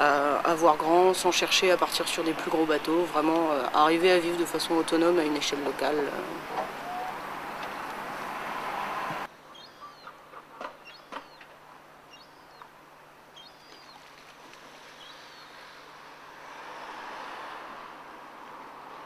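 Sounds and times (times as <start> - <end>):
loud outdoor noise: 0.0 - 19.0
bird chirps: 9.4 - 11.5, 12.1 - 12.7, 13.4 - 14.1.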